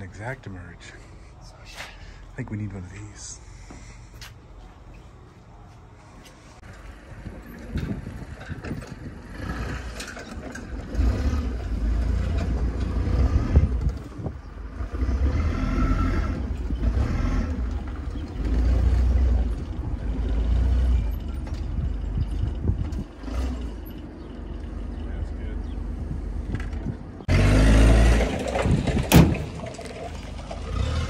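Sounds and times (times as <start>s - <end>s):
forklift engine running: 6.6s - 31.0s.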